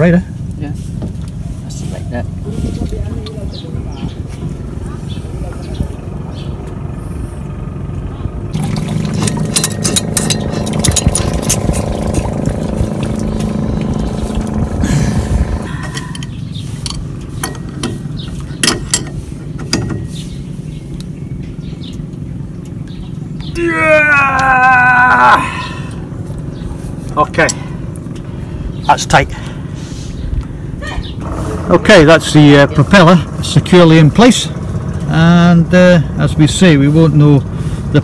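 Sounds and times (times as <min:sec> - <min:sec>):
steady motor hum: 0:00.0 - 0:38.0
metal clinks and knocks: 0:08.8 - 0:12.4, 0:15.8 - 0:20.2.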